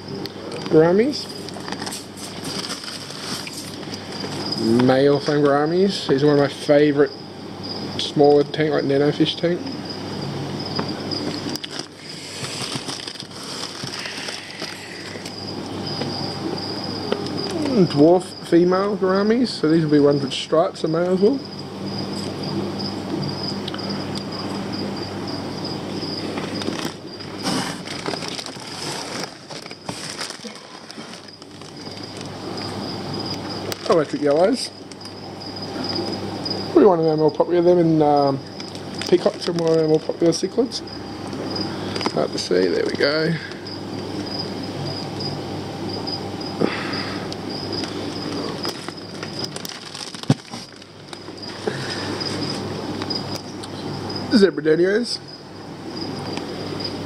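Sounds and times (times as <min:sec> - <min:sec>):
steady high-pitched whine: 0:00.0 - 0:57.0
steady low hum: 0:00.0 - 0:57.0
plastic bags crinkling: 0:01.4 - 0:04.2, 0:11.4 - 0:15.4, 0:26.4 - 0:32.5, 0:38.5 - 0:40.7, 0:47.8 - 0:52.5.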